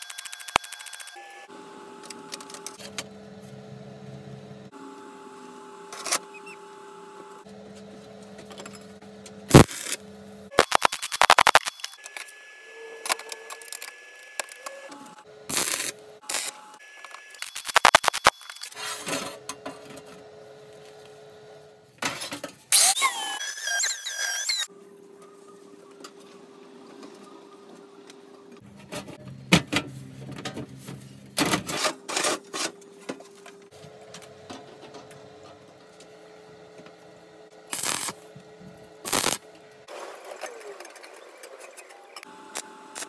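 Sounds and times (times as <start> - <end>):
arc welding bursts: 9.5 - 10.0, 15.5 - 16.6, 17.4 - 18.5, 37.7 - 38.2, 39.0 - 39.4.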